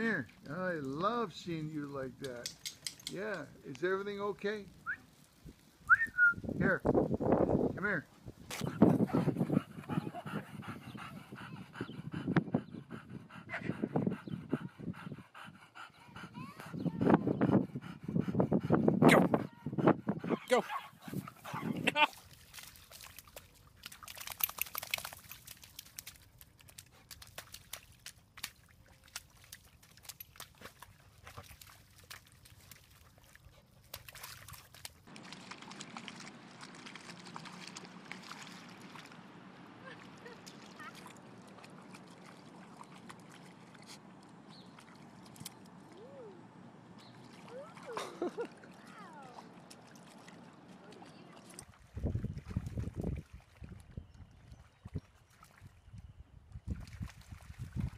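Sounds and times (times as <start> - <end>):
dog panting: 8.6 - 21.9
dog splashing in water: 21.1 - 43.9, 47.1 - 53.8, 56.7 - 57.9
wet slaps and squelches in mud: 22.2 - 38.6.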